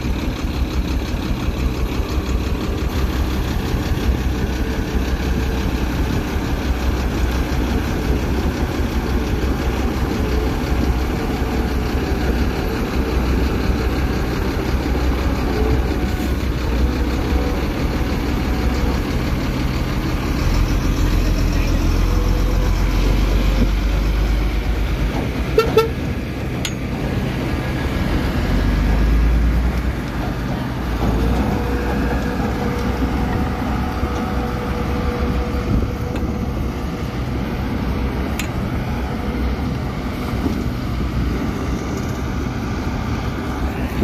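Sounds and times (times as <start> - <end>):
heavy diesel engines running: 0.0 - 44.0
short horn toot: 25.6 - 26.0.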